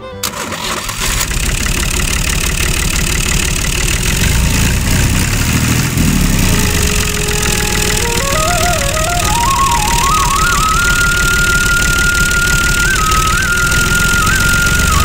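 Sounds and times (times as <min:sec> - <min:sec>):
tractor engine running: 0:00.2 - 0:15.0.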